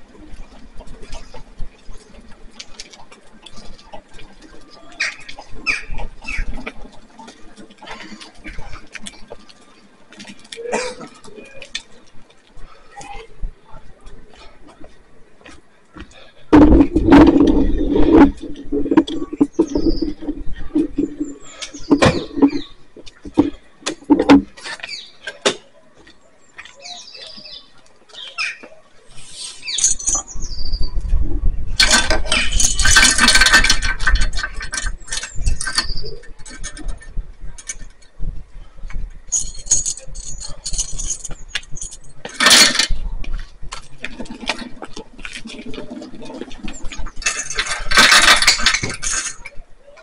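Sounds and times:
weight sled scraping on ground: 0:00.0 - 0:25.6, 0:26.2 - 0:50.0
knocks and clanks: 0:16.0 - 0:25.7, 0:31.8 - 0:38.2, 0:38.9 - 0:49.6.

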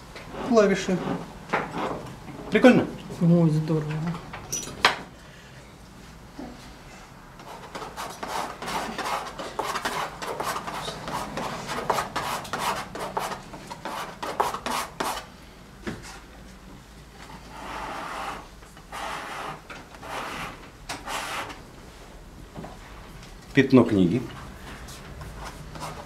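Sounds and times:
palette knife scraping paint: 0:07.4 - 0:15.3, 0:17.5 - 0:21.6.

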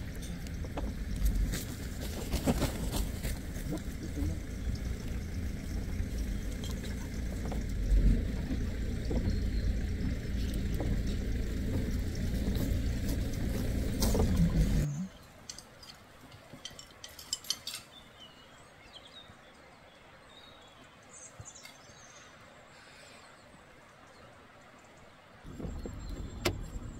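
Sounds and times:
steady low rumble: 0:00.0 - 0:15.2.

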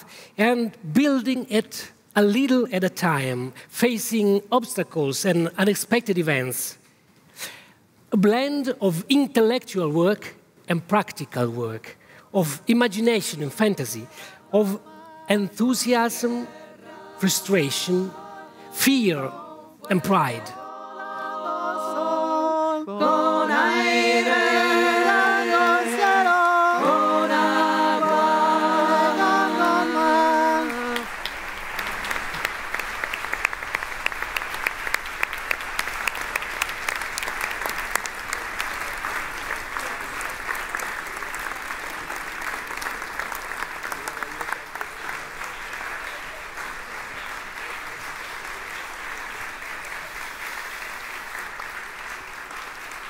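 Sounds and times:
voices singing a cappella chord: 0:13.4 - 0:31.2
audience applauding: 0:23.2 - 0:53.0.

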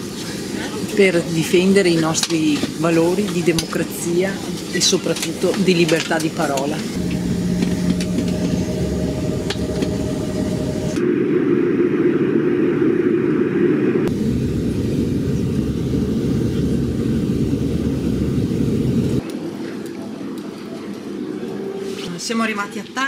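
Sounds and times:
faint steady hum: 0:06.6 - 0:20.4
jet engine rumble in cabin: 0:06.7 - 0:19.2.

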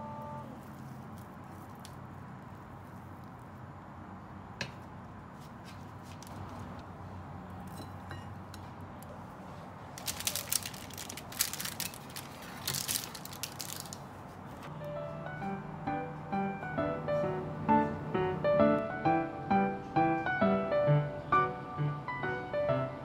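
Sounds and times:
crackly rustling: 0:00.4 - 0:03.9, 0:09.0 - 0:14.7.

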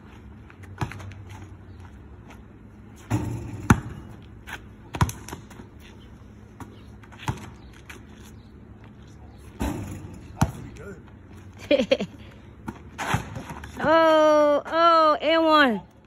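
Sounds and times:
basketball bouncing on asphalt: 0:00.0 - 0:08.1, 0:10.2 - 0:10.8, 0:12.6 - 0:14.0.

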